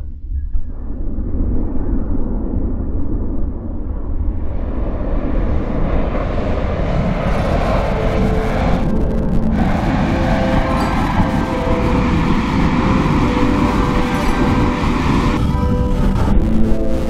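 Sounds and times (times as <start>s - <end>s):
air rushing over camera: 0.7s - 16.9s.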